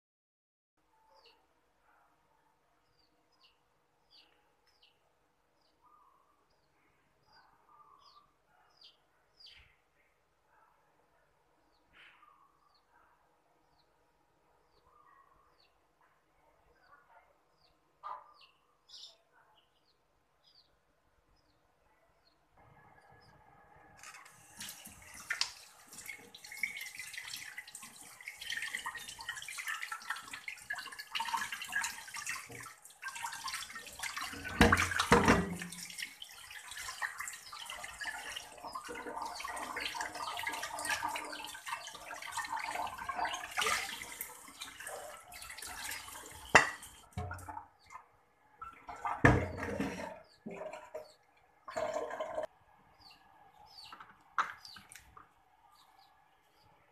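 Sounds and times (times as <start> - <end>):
tap water splashing into sink: 24.2 - 47.7, 48.7 - 51.1, 54.0 - 55.3.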